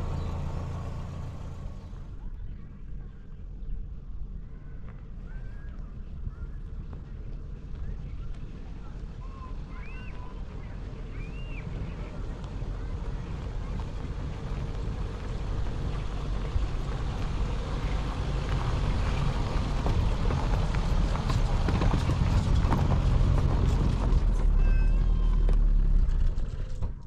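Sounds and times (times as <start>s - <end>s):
car engine and tyre rumble: 0.0s - 27.0s
stones crunching under tyres: 12.3s - 24.5s.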